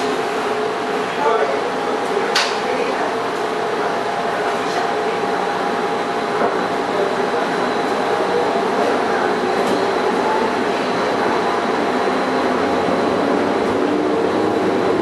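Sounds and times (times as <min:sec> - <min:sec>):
metro train electric hum: 0:00.0 - 0:15.0
train rolling noise: 0:03.1 - 0:15.0.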